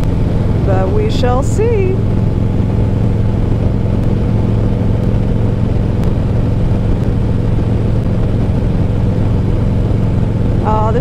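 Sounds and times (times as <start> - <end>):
motorcycle engine cruising: 0.0 - 11.0
wind on microphone: 0.0 - 11.0.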